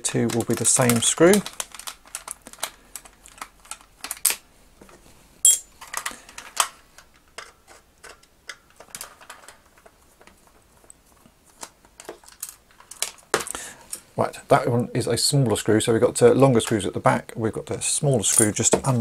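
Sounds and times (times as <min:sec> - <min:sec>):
plastic shell being handled: 0:00.0 - 0:05.2, 0:05.8 - 0:14.1, 0:17.7 - 0:19.0.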